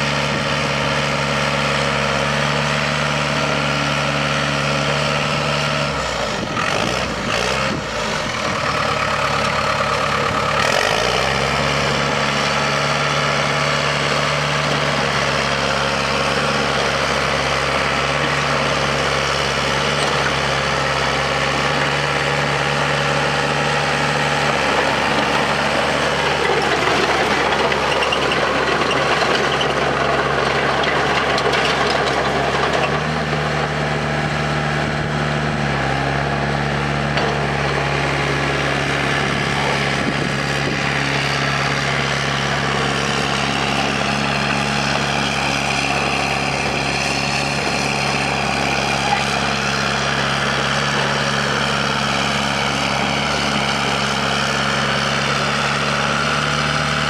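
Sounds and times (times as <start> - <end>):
bulldozer diesel engine running: 0.0 - 57.0.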